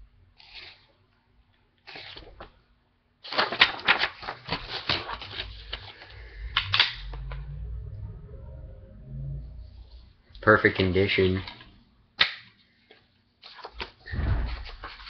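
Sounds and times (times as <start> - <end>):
plastic cases rustling and crinkling: 3.2 - 6.2.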